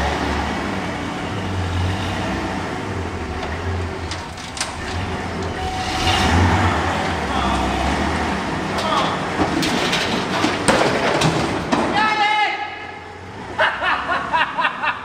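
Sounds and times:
truck engine at low revs: 0.0s - 11.7s
heavy metal cabinet scraping: 4.1s - 11.8s.

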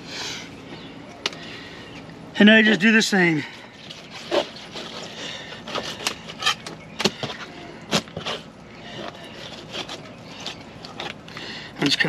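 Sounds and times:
knife clicking and scraping fish: 3.9s - 11.3s.

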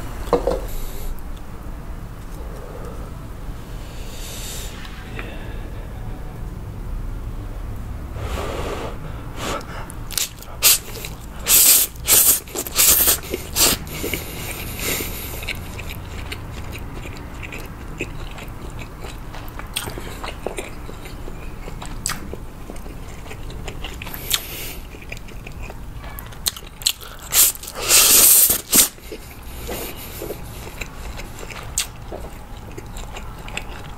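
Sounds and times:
noodles slurped: 8.2s - 19.2s, 26.9s - 33.9s
chewing: 9.6s - 33.9s.

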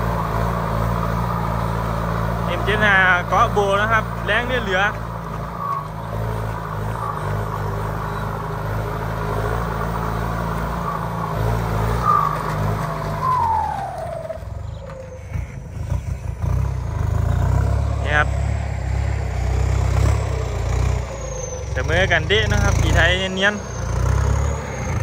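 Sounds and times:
tractor diesel engine under load: 0.0s - 25.0s
turbo whistle falling in pitch: 11.9s - 15.6s.

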